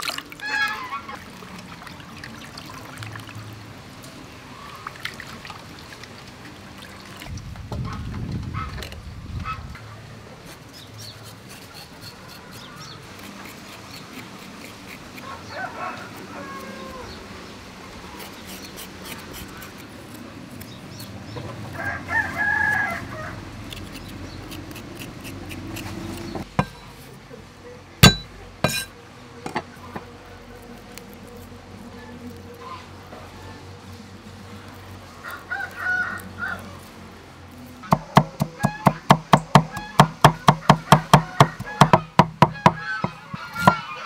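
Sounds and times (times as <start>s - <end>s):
rooster crowing: 15.2s - 17.2s, 21.7s - 23.5s, 35.2s - 36.9s, 40.5s - 44.0s
sharp knocks: 28.0s - 28.9s.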